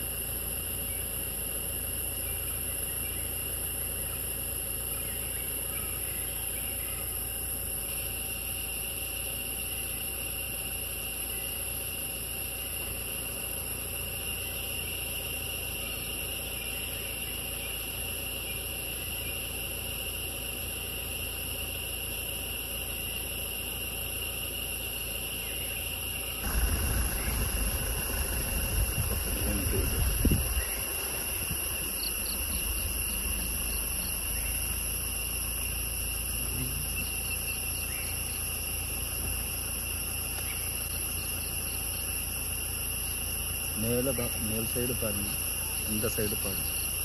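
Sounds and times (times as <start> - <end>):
forest insects droning: 0.0 - 47.0
rough low noise: 26.3 - 39.1
low even rumble: 26.4 - 37.2.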